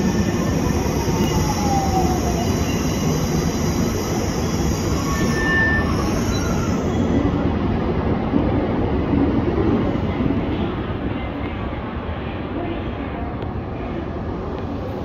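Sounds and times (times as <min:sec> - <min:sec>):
train wheel and rail noise: 0:00.0 - 0:15.0.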